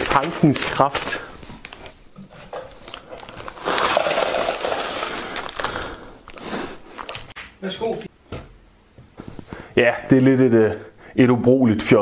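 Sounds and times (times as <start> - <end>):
plastic chip bag crinkling: 0.0 - 7.4
chip crumbs rattling into tub: 2.8 - 6.4.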